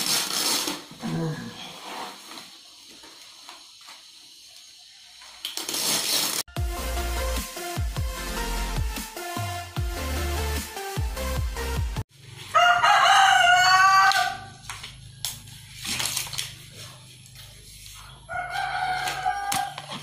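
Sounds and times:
electronic music: 6.5s - 12.0s
rooster crowing: 12.5s - 14.7s, 18.2s - 20.0s.

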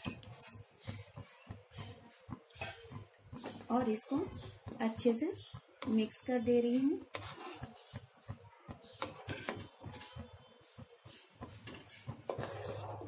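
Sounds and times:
ladle scraping a metal pan: 11.7s - 13.0s.

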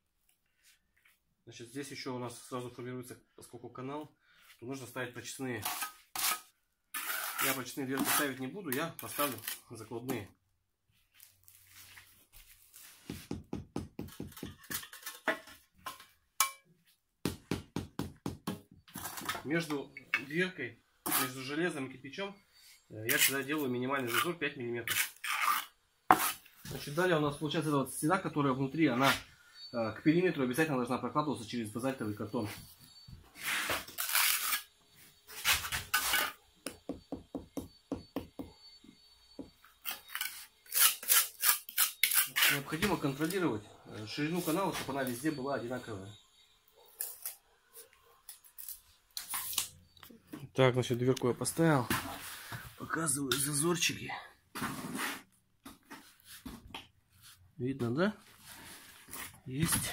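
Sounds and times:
trowel scraping on mortar: 5.6s - 9.7s, 14.0s - 16.0s, 21.0s - 21.5s, 23.1s - 27.0s, 33.4s - 36.4s, 39.8s - 43.4s, 54.6s - 55.3s
mallet tapping brick: 36.6s - 38.6s.

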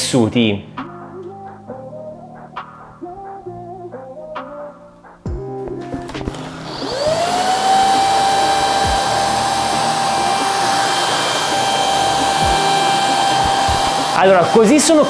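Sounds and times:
stick vacuum motor whine: 6.0s - 15.0s.

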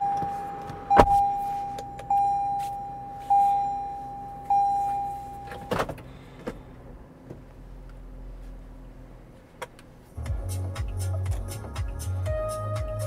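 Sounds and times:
electronic chime dinging: 0.0s - 5.7s.

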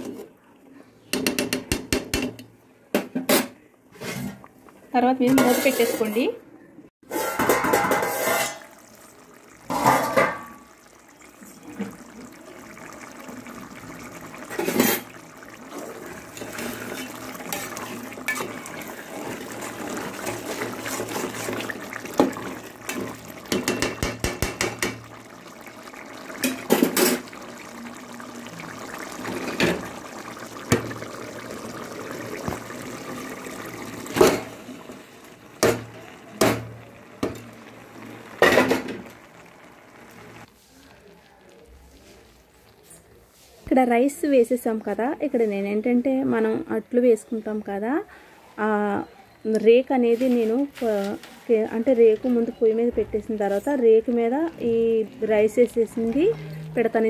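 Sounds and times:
metal pots and spoon knocking: 1.1s - 2.4s, 7.1s - 8.6s, 9.7s - 10.6s, 20.2s - 25.1s
water pouring and splashing: 7.0s - 43.6s, 50.1s - 57.0s.

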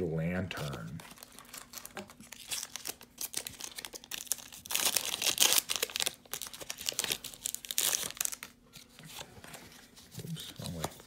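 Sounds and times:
foil wrapper crinkling: 0.6s - 8.6s.

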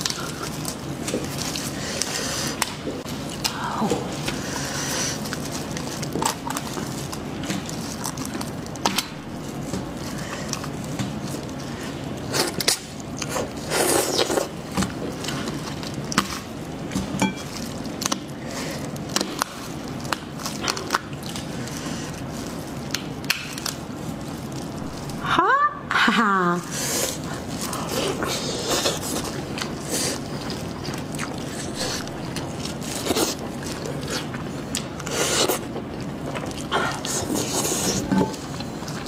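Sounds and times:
close wet chewing: 0.0s - 25.2s, 26.6s - 39.0s
plastic gloves crinkling: 0.0s - 25.5s, 26.6s - 39.0s
sharp crackles and clicks: 5.2s - 25.3s.

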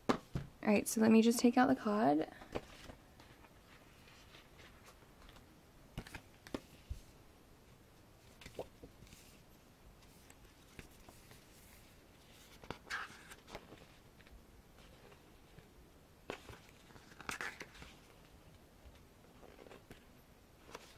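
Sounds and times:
paper rustle: 2.5s - 7.0s, 10.0s - 15.7s, 16.3s - 20.9s
soft taps of book handling: 6.0s - 7.1s.

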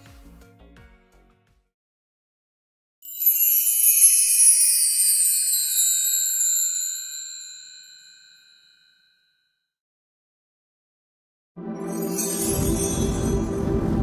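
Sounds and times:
high-pitched shimmering chime: 3.0s - 9.4s, 11.6s - 14.0s.

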